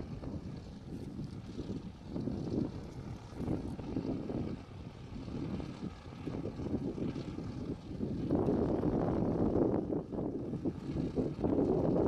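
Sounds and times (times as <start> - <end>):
light aircraft engine droning: 0.0 - 12.0.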